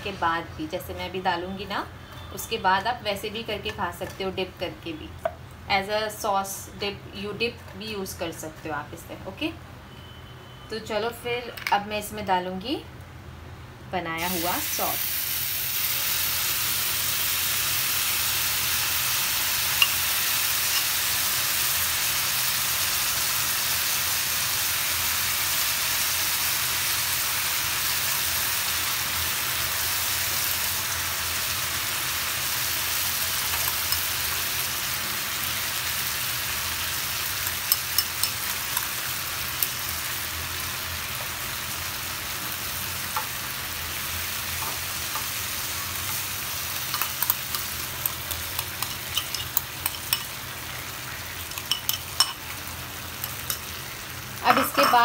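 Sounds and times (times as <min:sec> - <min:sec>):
bread sizzling in frying pan: 0:14.2 - 0:55.0.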